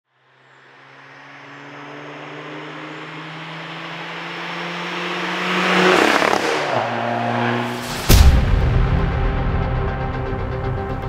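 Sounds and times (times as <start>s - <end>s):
car passing at speed: 0.2s - 8.2s.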